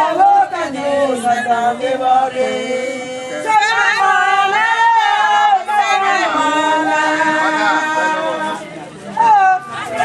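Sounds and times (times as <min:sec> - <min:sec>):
women singing unaccompanied: 0:00.0 - 0:10.0.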